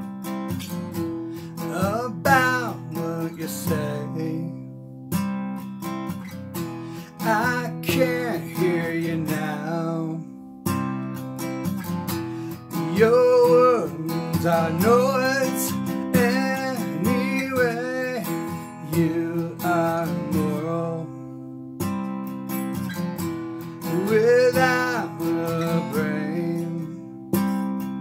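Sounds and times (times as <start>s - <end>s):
strummed acoustic guitar: 0.0s - 28.0s
man singing: 1.4s - 4.8s, 7.0s - 10.4s, 12.5s - 21.5s, 23.6s - 27.5s.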